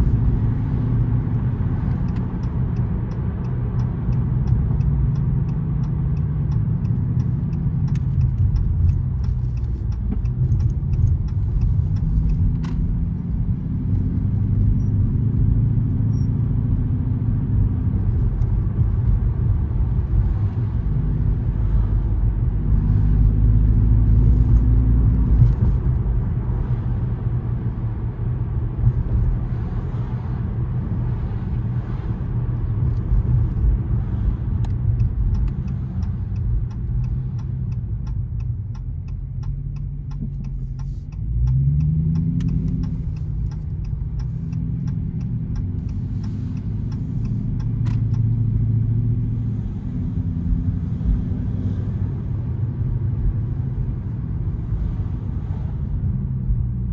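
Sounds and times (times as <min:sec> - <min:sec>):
car engine and road rumble: 0:00.0 - 0:56.9
light regular ticking: 0:00.3 - 0:15.0, 0:32.8 - 0:49.4.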